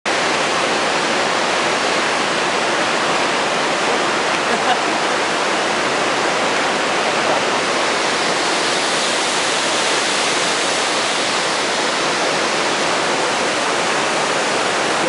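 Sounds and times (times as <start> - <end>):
rush of flowing water: 0.1 - 15.0.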